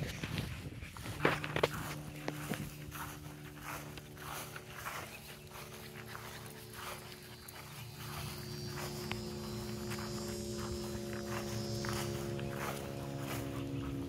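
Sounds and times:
steady mechanical hum: 0.0s - 14.0s.

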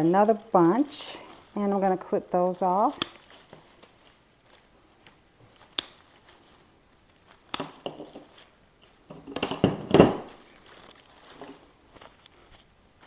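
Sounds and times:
scissors snipping stems: 0.0s - 4.0s, 5.0s - 6.4s, 7.1s - 9.6s
plastic flowers rustling: 0.0s - 13.0s.

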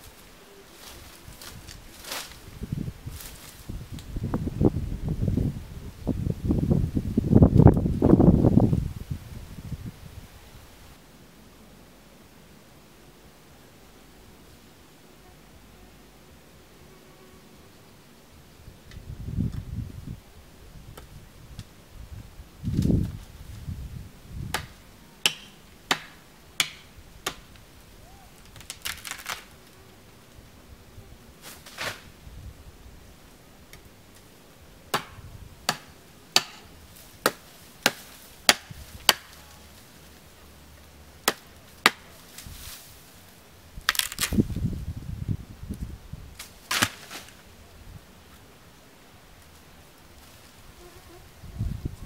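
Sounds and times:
rustling: 0.0s - 4.2s, 27.4s - 30.4s, 36.6s - 44.8s, 46.4s - 48.5s
machete chopping bamboo: 24.5s - 27.5s, 34.9s - 39.4s, 41.2s - 42.1s, 46.4s - 47.4s.

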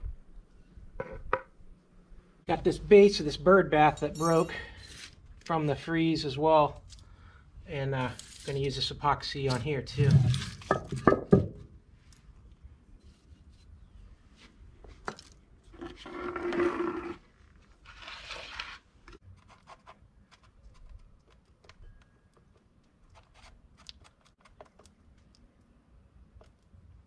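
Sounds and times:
harsh scrapes: 15.8s - 18.9s.

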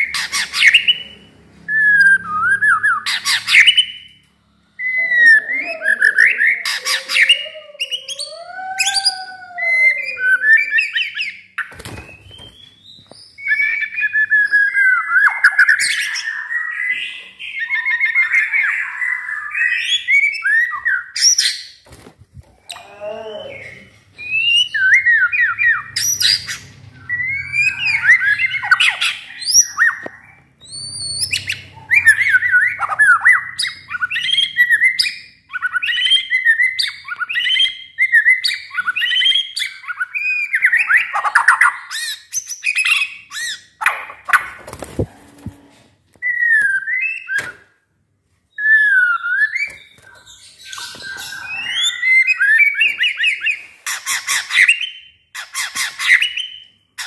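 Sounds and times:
bird song whistled phrases: 48.5s - 55.1s.

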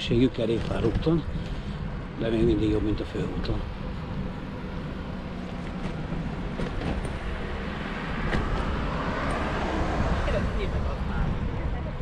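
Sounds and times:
bicycles rolling on rough path: 0.0s - 9.0s.

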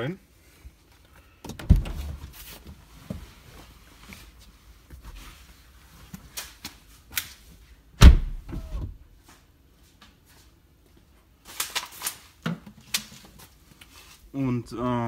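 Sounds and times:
heavy bass thump: 8.0s - 9.0s.

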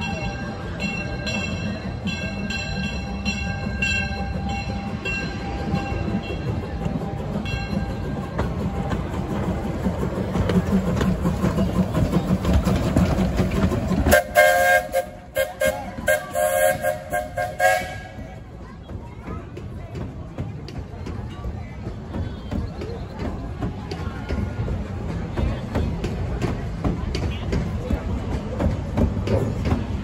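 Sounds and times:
steam locomotive rumbling past: 0.0s - 30.0s
steam whistle blasts: 14.1s - 18.2s.

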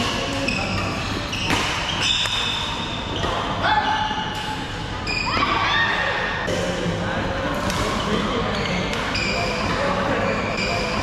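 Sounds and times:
shoes squeaking on court floor: 0.0s - 4.3s
racket striking shuttlecock: 1.4s - 2.6s.

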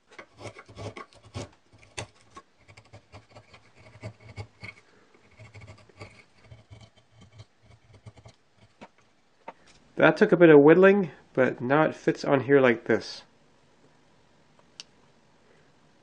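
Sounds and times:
gouge scraping wood: 0.0s - 9.0s.

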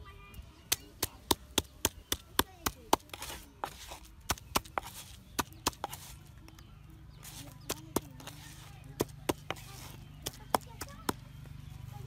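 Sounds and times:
pestle pounding in stone mortar: 1.0s - 6.2s, 7.7s - 11.3s.

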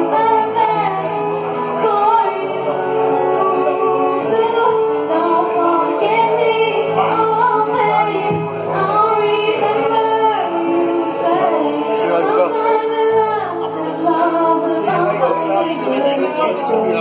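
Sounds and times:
instrumental accompaniment: 0.0s - 17.0s
woman singing into microphone: 0.0s - 17.0s.

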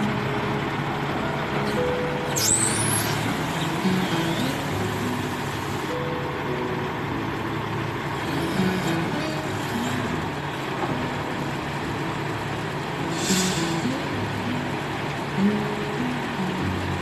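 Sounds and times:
diesel truck engine running: 0.0s - 17.0s
short hiss: 2.3s - 3.4s, 13.1s - 14.0s.

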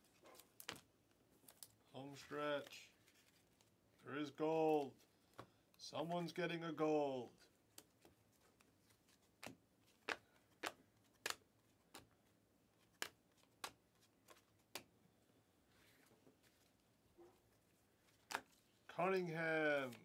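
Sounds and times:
trading cards snapping: 9.4s - 12.1s, 12.8s - 14.9s.

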